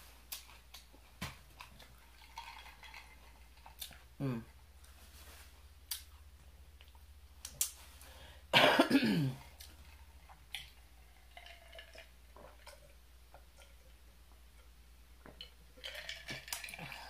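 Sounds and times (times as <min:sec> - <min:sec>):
woman coughing: 0:08.5 - 0:09.4.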